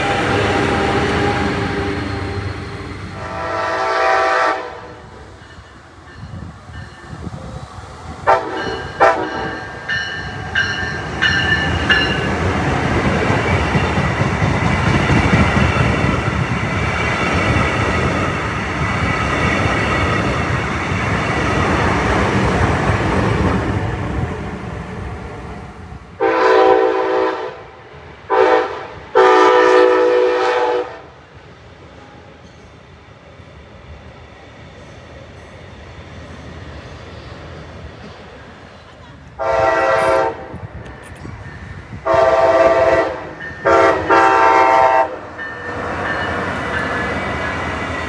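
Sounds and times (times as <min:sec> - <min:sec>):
train wheels rushing on rail: 0:00.0 - 0:48.0
train horn: 0:03.1 - 0:05.2, 0:08.3 - 0:09.6, 0:26.2 - 0:31.2, 0:39.4 - 0:40.6, 0:42.0 - 0:45.8.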